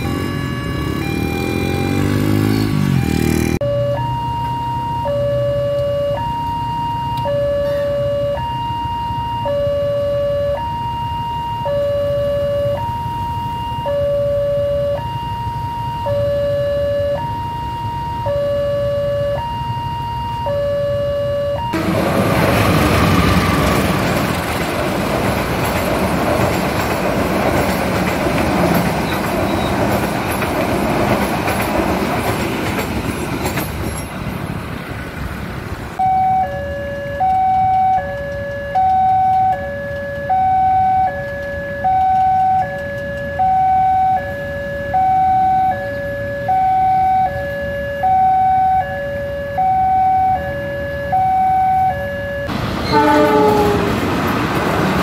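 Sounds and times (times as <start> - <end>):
level crossing warning bell: 0.0 - 2.1, 2.9 - 24.4, 36.0 - 54.5
diesel locomotive rumbling past: 0.0 - 4.2, 21.6 - 36.6, 52.5 - 55.0.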